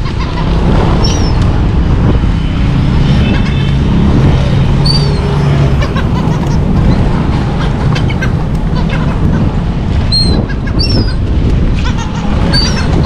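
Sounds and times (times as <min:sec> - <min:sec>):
low engine hum: 0:00.0 - 0:13.0
gull calls: 0:10.1 - 0:11.2, 0:11.8 - 0:13.0.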